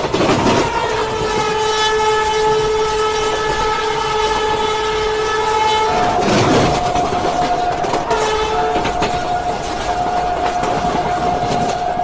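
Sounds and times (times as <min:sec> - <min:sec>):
moving train running noise: 0:00.0 - 0:12.0
locomotive horn blast: 0:00.4 - 0:12.0.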